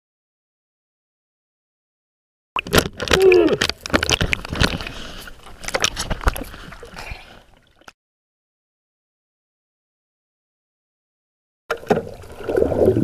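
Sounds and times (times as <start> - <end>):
water splashing: 2.6 - 7.9, 11.7 - 13.0.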